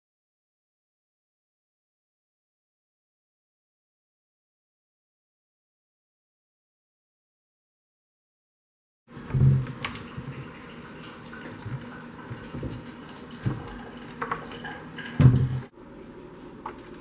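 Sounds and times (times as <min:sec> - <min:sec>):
cabinet doors knocking: 0:15.2 - 0:15.6.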